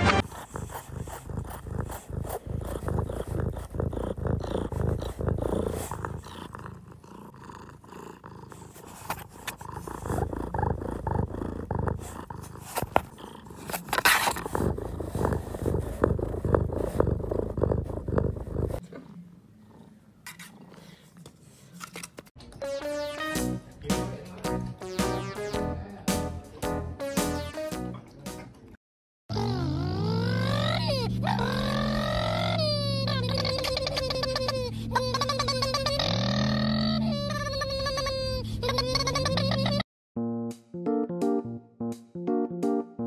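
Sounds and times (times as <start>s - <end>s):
cat purring: 0.1s - 21.0s.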